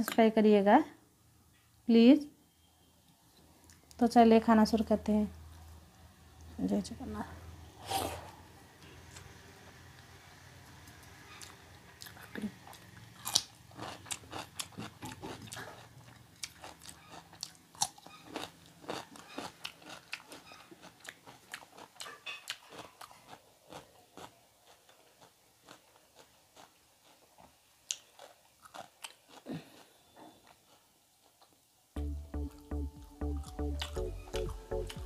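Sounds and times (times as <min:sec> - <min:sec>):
cucumber crunching and chewing: 0:11.3 - 0:31.5, 0:33.3 - 0:35.0.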